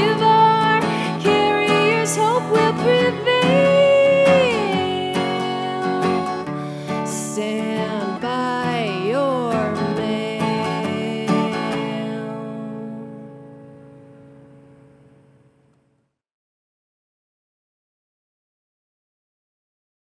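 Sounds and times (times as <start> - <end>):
woman singing: 0.0 - 13.4
acoustic guitar strumming: 0.0 - 15.7.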